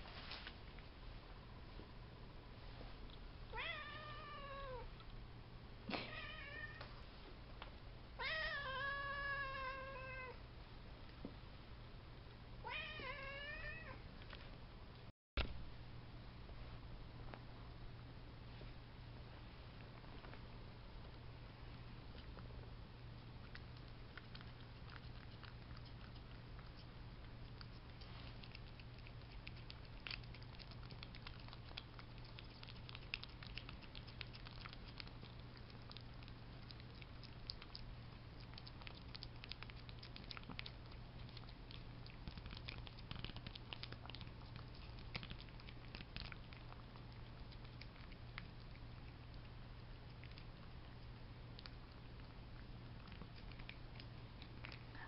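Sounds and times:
cat licking wet clicks: 23.4s - 55.0s.

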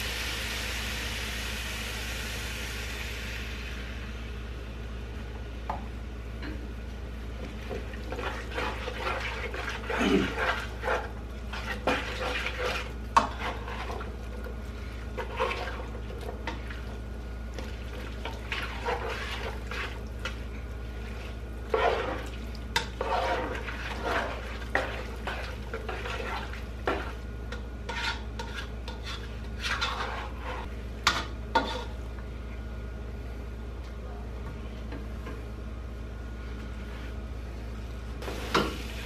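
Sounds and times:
steady low hum: 0.0s - 39.0s
spatula scraping frying pan: 8.1s - 16.8s, 18.2s - 20.4s, 21.0s - 32.0s.

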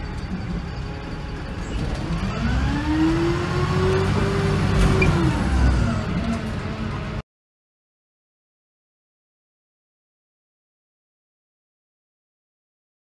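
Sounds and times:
bus engine revving: 0.1s - 7.2s.

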